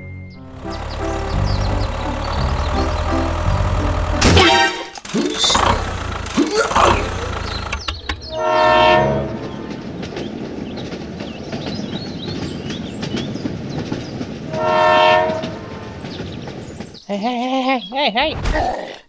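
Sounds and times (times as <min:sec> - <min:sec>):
train clickety-clack rattle: 0:00.5 - 0:17.1
train horn blasts: 0:00.6 - 0:05.0, 0:08.3 - 0:09.9, 0:14.5 - 0:16.1.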